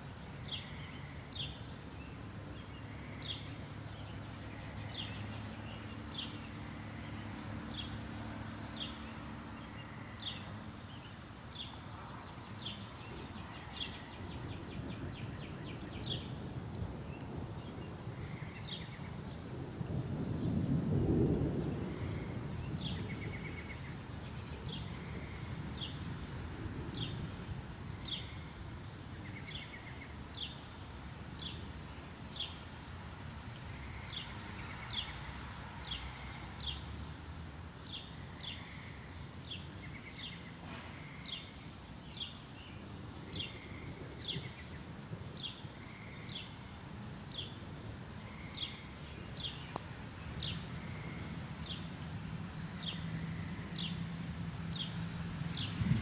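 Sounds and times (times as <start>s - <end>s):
low background noise: 0.0s - 56.0s
bird chirping: 29.1s - 30.8s, 52.7s - 54.0s.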